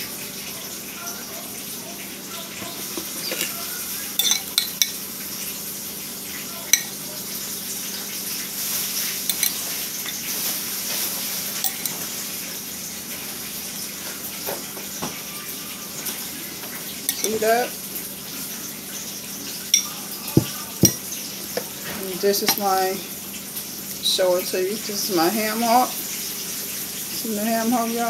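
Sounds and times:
utensil clinking glass bowl: 3.0 - 5.0, 6.6 - 7.0, 9.3 - 10.3, 11.6 - 12.0, 17.0 - 17.6, 19.7 - 21.7, 22.3 - 22.9.

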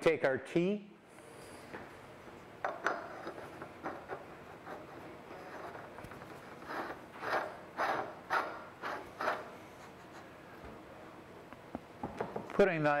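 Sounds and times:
pipe threads scraping: 2.7 - 10.2.

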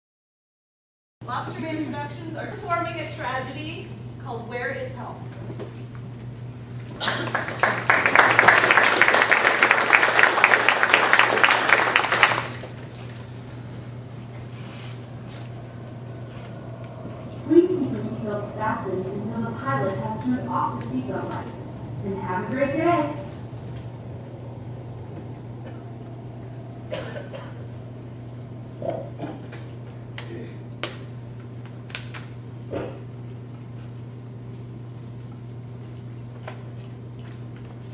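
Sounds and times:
steady low hum: 1.2 - 37.9
audience applauding: 7.0 - 12.8.

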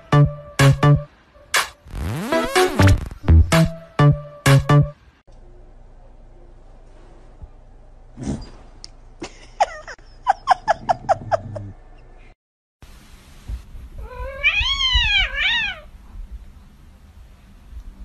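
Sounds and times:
cat meowing: 14.0 - 15.9.

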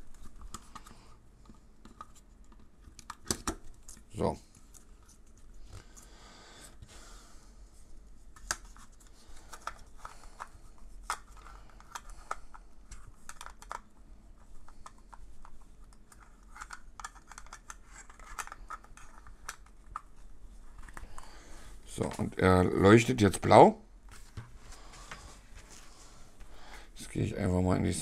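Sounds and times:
plastic clicks and scraping: 8.4 - 13.9, 14.6 - 20.1.

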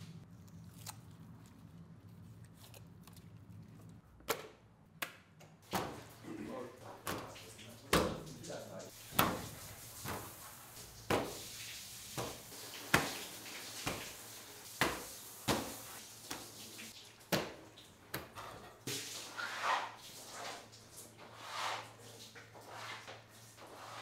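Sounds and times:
fish fillets slapping on steel: 12.2 - 13.2.

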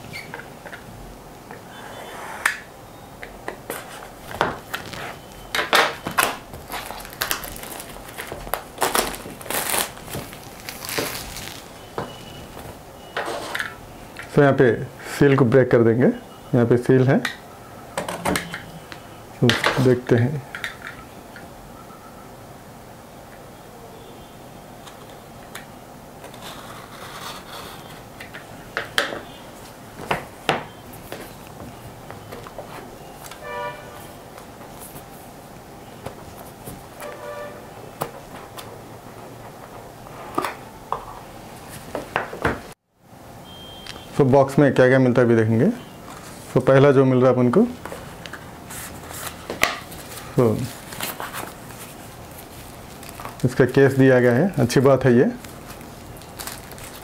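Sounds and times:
plastic shrink-wrap crinkling: 4.7 - 12.7, 48.7 - 57.0.

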